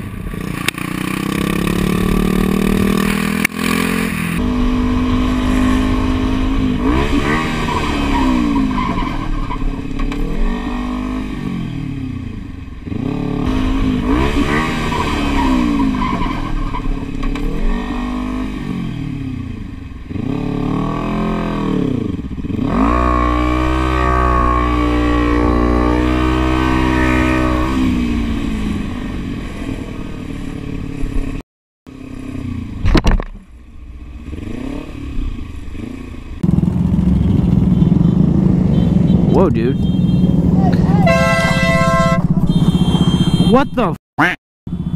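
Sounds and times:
motorcycle engine revving: 0.0 - 43.9.

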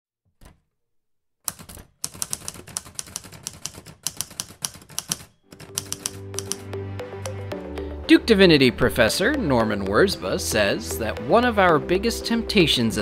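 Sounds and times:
typewriter keys clacking: 1.5 - 6.6.

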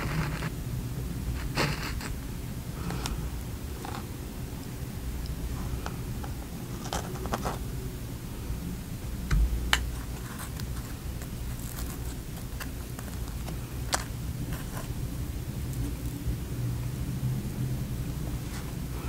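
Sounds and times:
steady low hum: 0.0 - 19.0
fingers handling a donut: 9.3 - 15.0.

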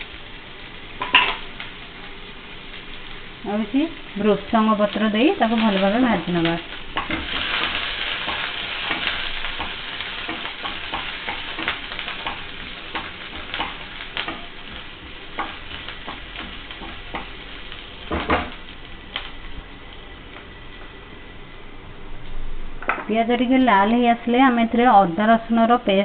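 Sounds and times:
food sizzling in hot oil: 0.0 - 20.8.

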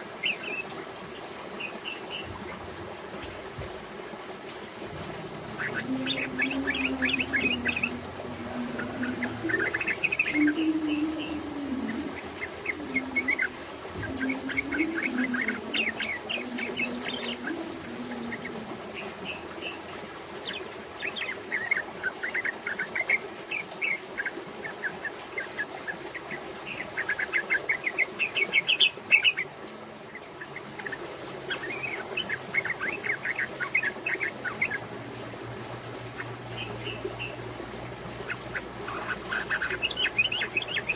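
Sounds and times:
bird singing chattering notes: 5.4 - 19.8, 36.1 - 40.9.

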